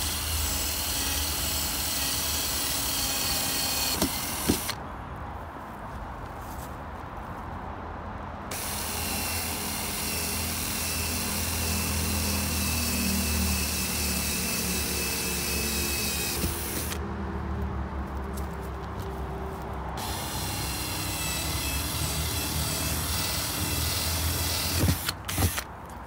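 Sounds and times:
cordless drill boring plastic: 0.0 - 4.8, 8.5 - 17.0, 20.0 - 25.7.

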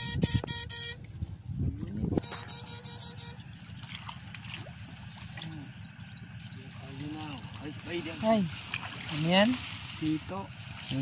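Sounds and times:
wading and sloshing water: 1.0 - 11.0
electric shocker buzzing: 2.2 - 3.6.

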